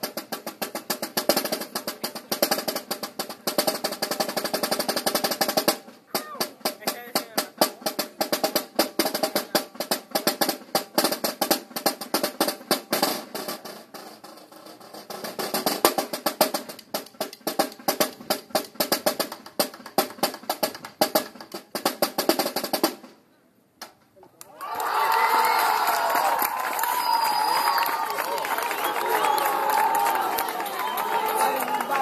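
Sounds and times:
snare drum rolls: 0:00.0 - 0:23.2
crowd cheering: 0:24.4 - 0:32.0.

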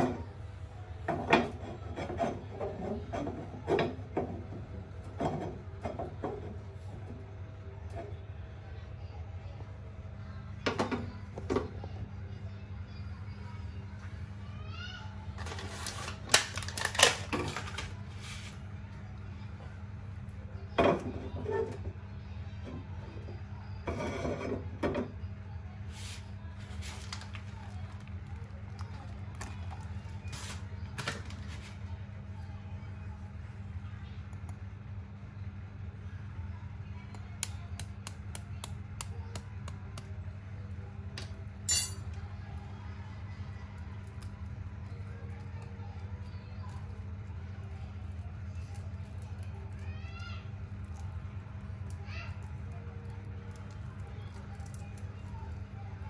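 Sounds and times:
frying pan scraping on metal grate: 0:23.8 - 0:24.7.

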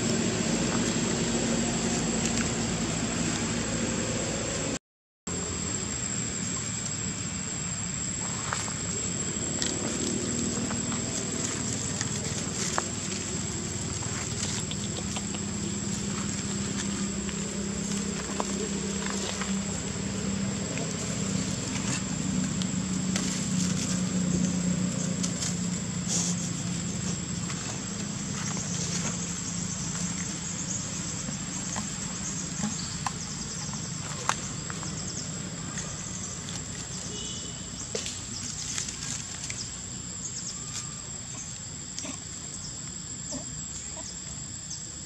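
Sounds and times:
rustles of dry leaves: 0:00.0 - 0:04.5, 0:05.3 - 0:45.0
steady low hum: 0:05.4 - 0:40.6.

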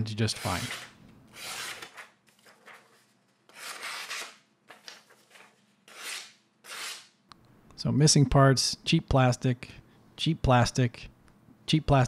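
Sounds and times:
knife slicing through paper: 0:00.3 - 0:07.1
paper rustling: 0:01.5 - 0:07.0.

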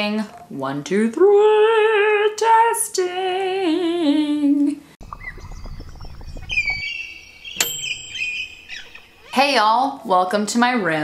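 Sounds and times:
woman singing into microphone: 0:00.0 - 0:04.8
faint high tones: 0:07.2 - 0:10.0.

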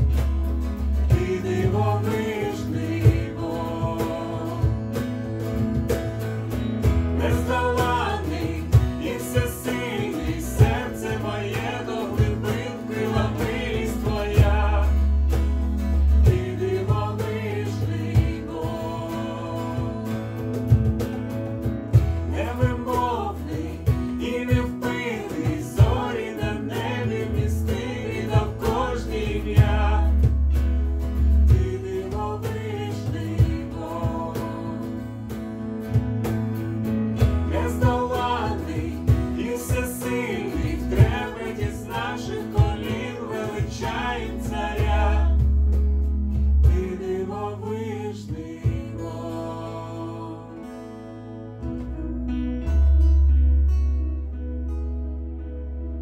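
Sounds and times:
cajon hits: 0:00.0 - 0:18.6, 0:19.8 - 0:34.2
people singing: 0:00.0 - 0:51.4
acoustic guitar: 0:00.0 - 0:56.0
electric keyboard: 0:00.0 - 0:56.0.

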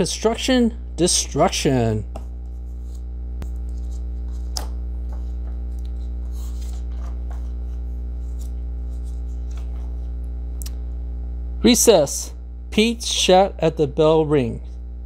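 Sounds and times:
low electrical hum: 0:00.0 - 0:15.0
book pages turning: 0:02.2 - 0:10.1
paper rustling: 0:02.4 - 0:10.1.

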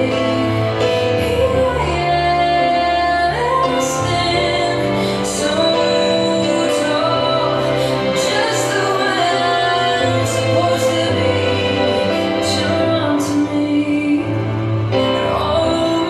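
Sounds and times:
woman singing: 0:00.0 - 0:16.0.

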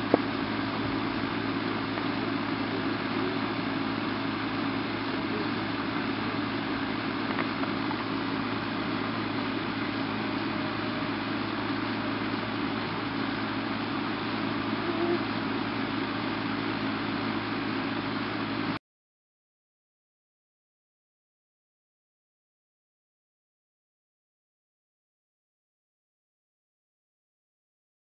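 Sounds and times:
engine idling: 0:00.0 - 0:18.8.

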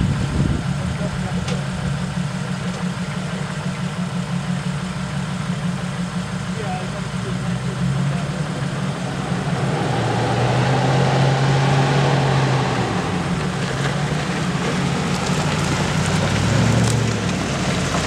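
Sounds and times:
engine running at low revs: 0:00.0 - 0:18.0
tyres crunching on gravel: 0:08.2 - 0:18.0.

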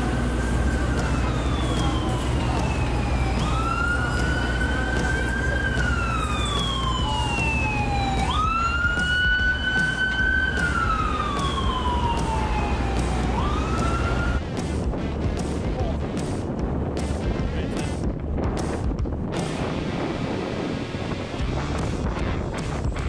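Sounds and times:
emergency siren wailing: 0:00.0 - 0:14.5
city traffic rumble: 0:00.0 - 0:23.0.

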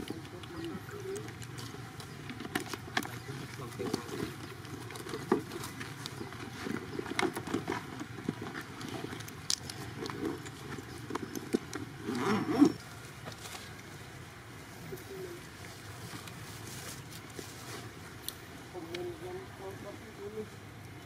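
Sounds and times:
rustling: 0:00.0 - 0:19.2.

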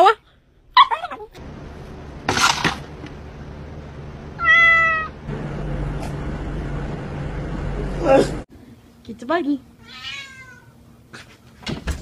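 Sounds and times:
cat meowing: 0:04.4 - 0:05.2, 0:09.8 - 0:10.8.

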